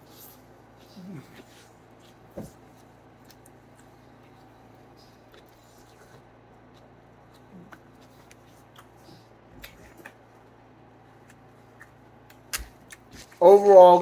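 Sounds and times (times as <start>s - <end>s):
low room hum: 0.0s - 14.0s
chewing and wet mouth clicks: 6.7s - 9.0s.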